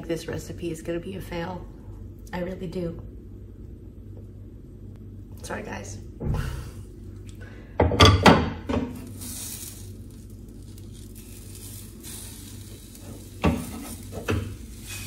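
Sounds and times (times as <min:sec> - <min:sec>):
butter sizzling in frying pan: 0:08.9 - 0:15.0
wooden spatula scraping pan: 0:12.8 - 0:15.0.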